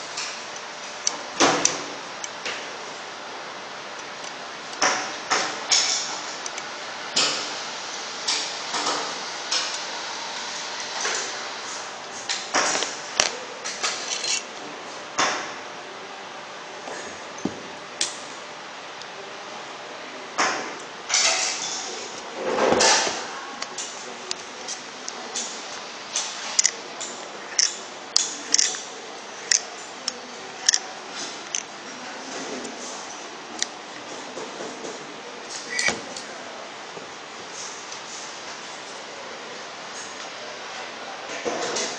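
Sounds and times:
metal clicks and clinks: 14.0s - 14.4s, 27.5s - 28.8s, 29.5s - 31.7s.

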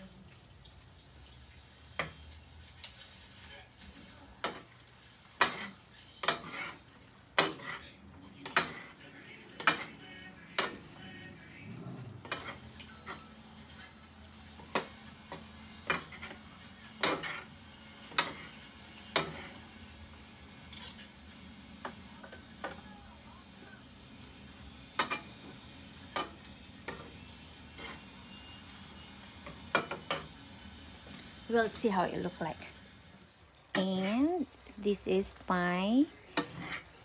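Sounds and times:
utensil scraping a wok: 4.4s - 22.8s, 24.3s - 30.4s, 33.7s - 37.0s.

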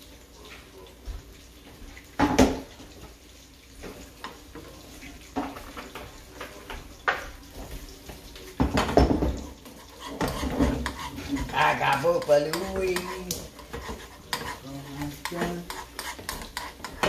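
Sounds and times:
faint steady gas hiss: 0.0s - 17.0s
spoon and pan clattering on hob: 8.6s - 17.0s.

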